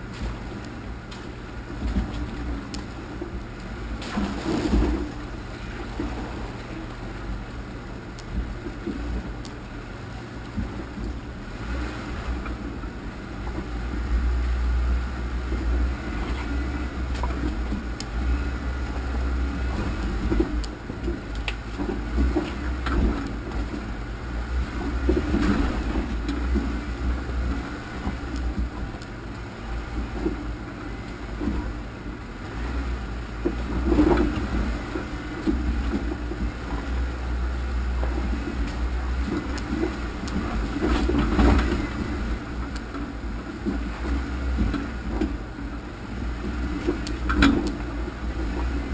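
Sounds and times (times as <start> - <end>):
vehicle engine drone: 0.0 - 48.9
knocks and rattles over rocks: 3.9 - 5.3, 37.9 - 45.5.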